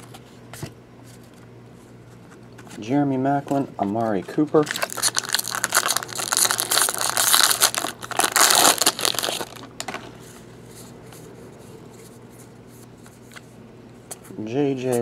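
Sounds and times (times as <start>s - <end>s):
foil wrapper crinkling and tearing: 4.6s - 9.8s.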